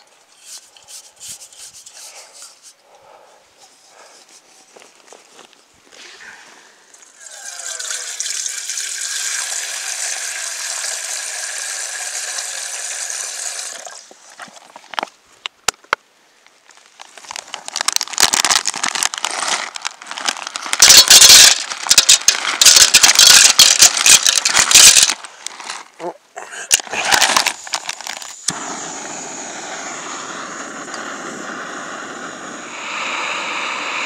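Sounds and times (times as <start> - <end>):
water pouring into metal pot: 7.2 - 14.0
plastic bag crinkling: 16.7 - 26.0, 26.7 - 28.5
dry pasta rattling into pot: 17.8 - 25.3.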